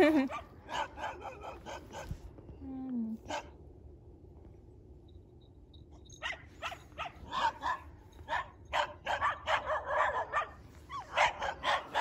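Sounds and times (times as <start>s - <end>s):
dogs barking: 0.2s - 2.2s, 3.3s - 3.5s, 6.2s - 12.0s.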